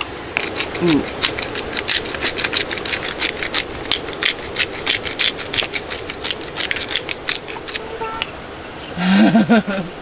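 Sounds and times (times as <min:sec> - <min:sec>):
pepper grinder crackling: 0:00.4 - 0:08.3.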